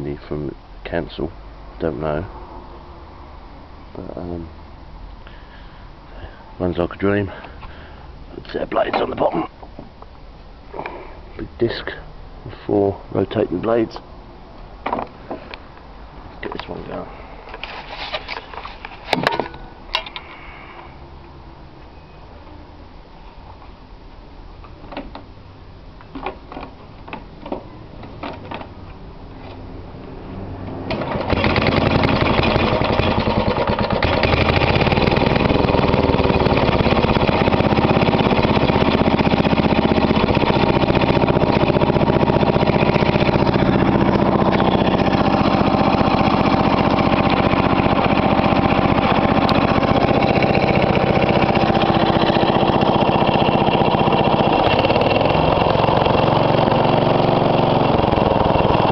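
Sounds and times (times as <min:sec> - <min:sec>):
lawn mower engine running: 0:30.9 - 0:58.9.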